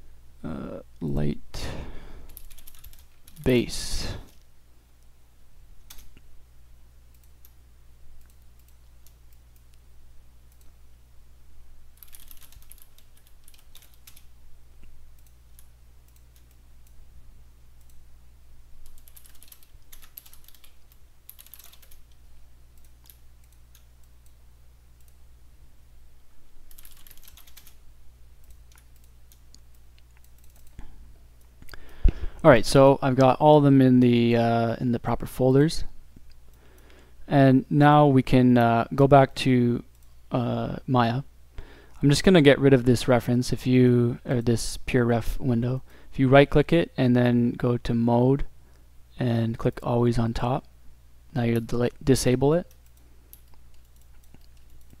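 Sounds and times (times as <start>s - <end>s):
steady low hum: 0.0s - 55.0s
computer keyboard typing: 2.3s - 3.4s, 12.0s - 14.3s, 18.8s - 22.2s, 26.7s - 27.8s, 28.4s - 30.8s.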